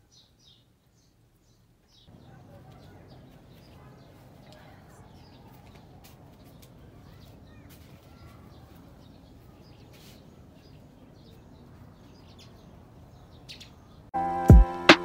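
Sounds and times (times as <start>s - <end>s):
bird chirps: 6.4s - 14.7s
background music: 14.2s - 15.0s.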